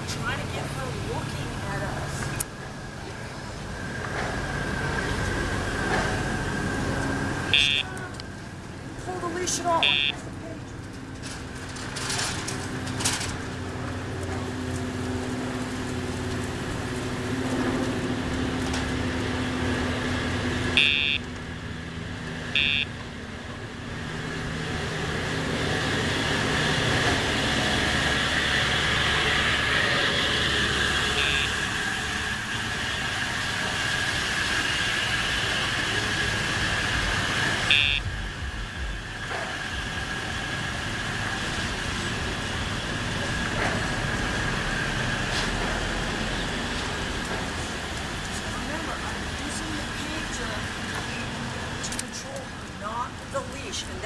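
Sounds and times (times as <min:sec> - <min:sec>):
traffic noise: 0:00.0 - 0:54.0
short high electronic beeps: 0:07.6 - 0:07.9, 0:09.8 - 0:10.2, 0:20.8 - 0:21.2, 0:22.6 - 0:22.9, 0:37.7 - 0:38.1.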